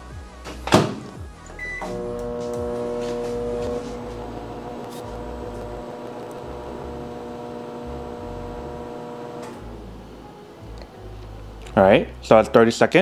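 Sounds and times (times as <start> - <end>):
microwave oven humming: 1.5 - 11.1.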